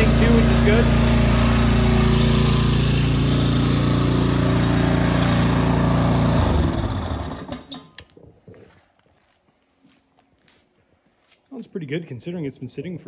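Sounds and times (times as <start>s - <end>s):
mower engine running: 0.0s - 7.8s.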